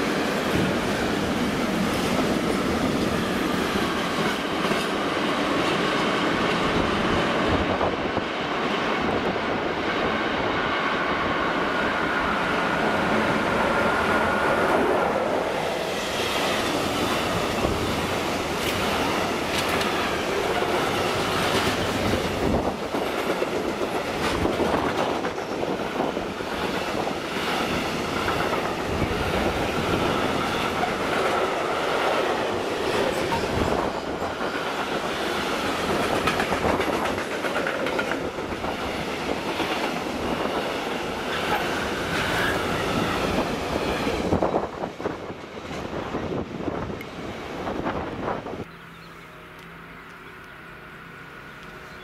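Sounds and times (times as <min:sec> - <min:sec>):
freight train rumbling past: 0:00.0 - 0:52.0
wheels clicking over rail joints: 0:16.5 - 0:42.5.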